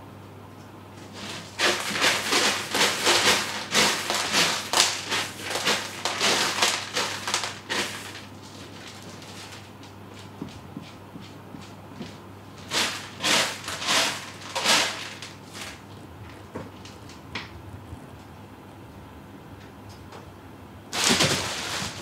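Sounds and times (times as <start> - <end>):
cat digging in pellet litter: 1.0 - 17.2, 20.9 - 22.0.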